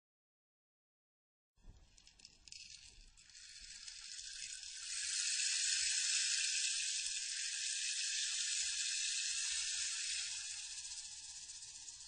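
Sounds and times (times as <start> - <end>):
steady high hiss: 2.7 - 12.0.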